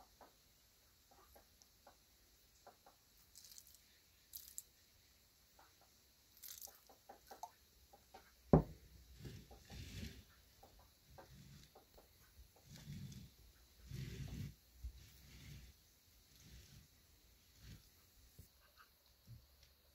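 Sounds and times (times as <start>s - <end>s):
faint ticks on table: 2.6s - 4.8s, 5.6s - 19.9s
low rustle: 8.6s - 18.6s.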